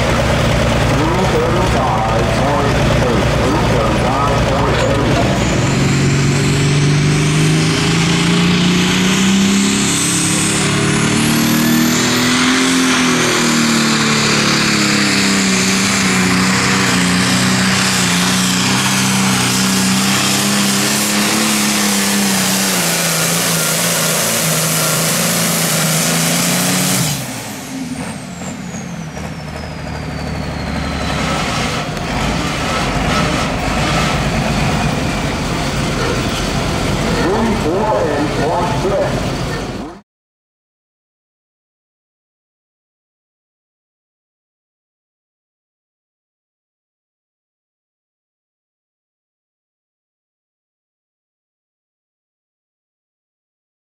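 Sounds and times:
diesel tractor engine under load: 0.0s - 40.0s.

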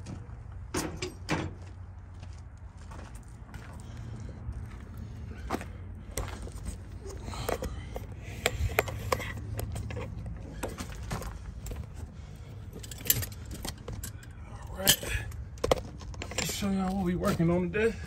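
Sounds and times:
steady low rumble: 0.0s - 18.0s
gear clicks and knocks: 6.2s - 17.6s.

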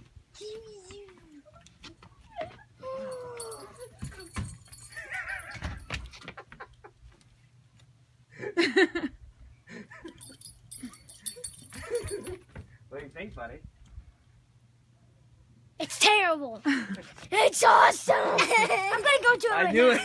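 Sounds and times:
boy making excited sounds: 0.4s - 1.5s, 2.8s - 4.4s, 15.8s - 16.7s, 17.3s - 20.0s.

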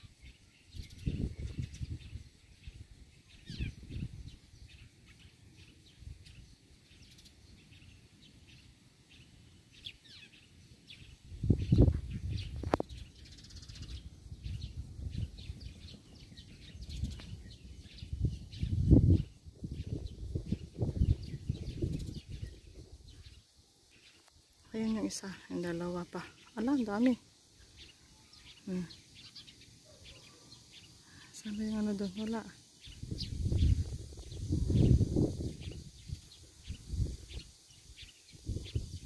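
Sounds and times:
small birds chirping: 0.0s - 39.0s
low rumbles on microphone: 0.8s - 2.3s, 11.3s - 13.1s, 14.3s - 23.3s, 33.0s - 37.5s.

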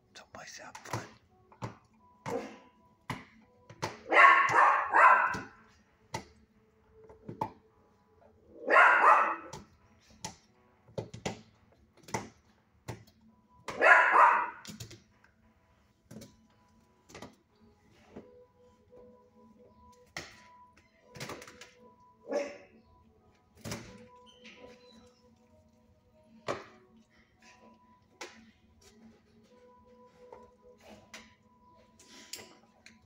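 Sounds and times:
dog barking: 4.0s - 5.6s, 8.5s - 9.7s, 13.7s - 14.7s, 22.2s - 22.8s.

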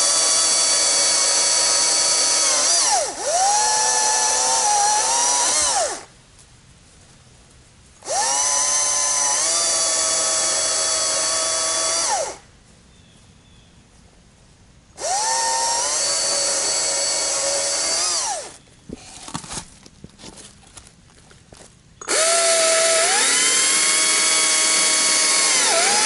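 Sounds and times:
battery chainsaw cutting wood: 0.0s - 6.1s, 8.0s - 12.4s, 15.0s - 19.2s, 22.0s - 26.0s.

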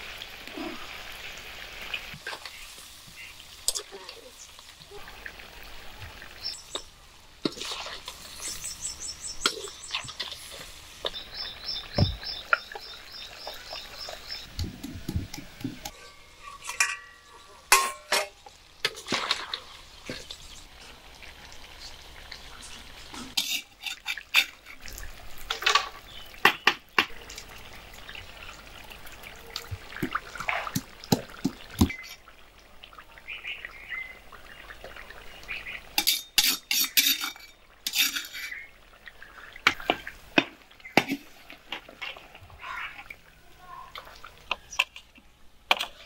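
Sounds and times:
ladle scraping metal pot: 15.0s - 19.6s, 23.4s - 25.9s, 36.0s - 38.7s.

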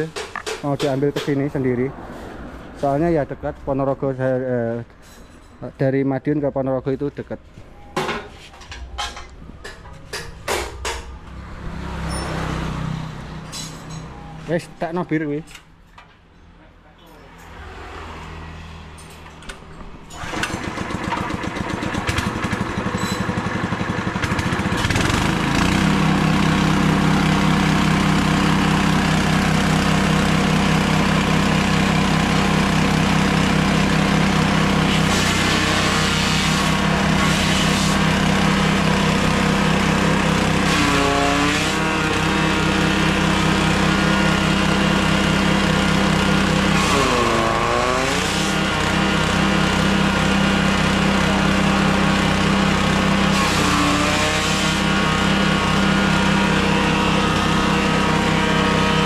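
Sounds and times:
chopper cutting grass stalks: 20.2s - 59.0s
small petrol engine running: 20.2s - 59.0s.

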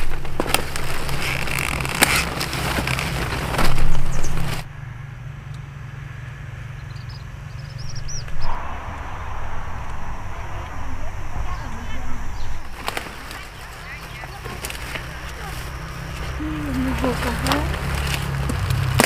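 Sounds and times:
vegetable stalks cracking and snapping: 0.0s - 4.6s, 12.8s - 19.0s
low steady hum: 0.0s - 19.0s
bird chirping: 6.7s - 8.6s.

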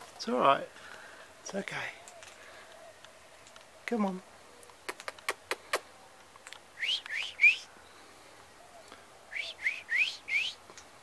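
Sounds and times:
parrot cracking seeds: 4.8s - 6.6s
parrot whistling calls: 6.8s - 7.7s, 9.3s - 10.6s.

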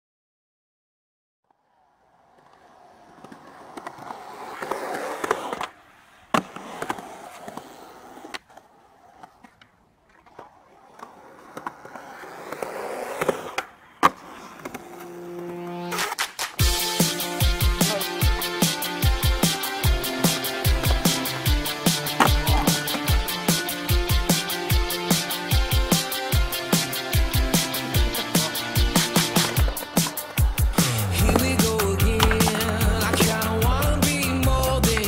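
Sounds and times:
skateboard clacking on ground: 1.5s - 16.6s, 20.3s - 23.3s, 27.9s - 35.0s
skateboard rolling on concrete: 1.5s - 35.0s.

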